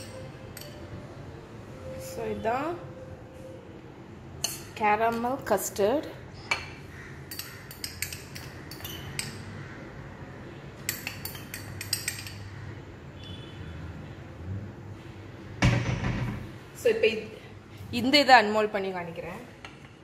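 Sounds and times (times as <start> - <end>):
knife clinking on ceramic dishes: 6.5 - 9.4, 10.9 - 12.5.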